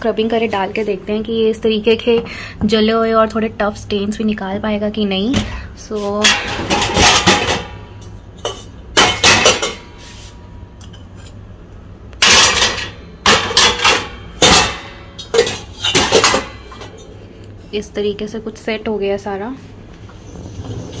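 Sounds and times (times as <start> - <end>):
steel pots and bowls clanking: 6.1 - 10.1, 12.2 - 17.2.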